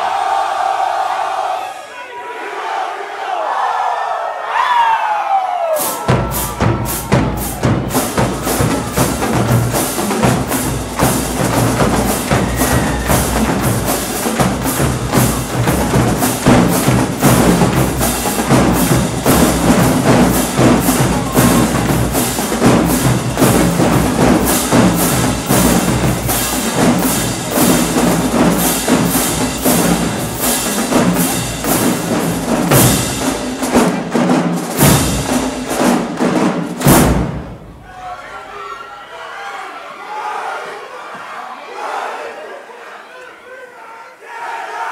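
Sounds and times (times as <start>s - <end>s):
snare drums cracking: 5.8s - 37.7s
bass drums pounding: 6.1s - 37.8s.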